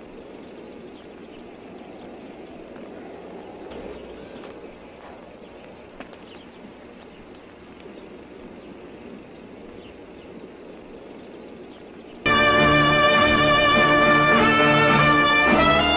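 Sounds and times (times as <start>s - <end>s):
low background noise: 0.0s - 15.9s
faint ticks: 3.6s - 8.3s
music: 12.3s - 15.9s.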